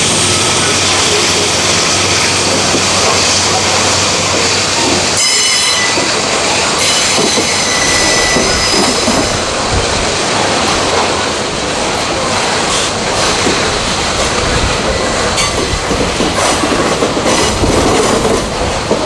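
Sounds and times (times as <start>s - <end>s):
train wheels rumbling on rail: 0.0s - 19.0s
high-pitched wheel squeal: 5.2s - 6.2s, 6.8s - 9.3s.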